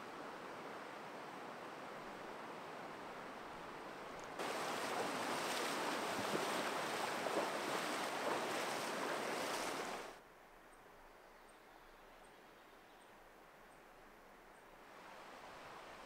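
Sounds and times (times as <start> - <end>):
river rapids rushing over stones: 4.4 - 10.1.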